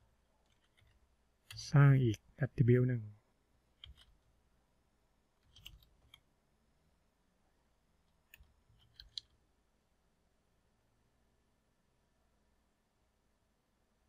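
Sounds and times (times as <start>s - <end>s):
faint keyboard typing: 0.2s - 2.3s, 3.8s - 4.3s, 5.4s - 6.3s, 8.0s - 9.4s.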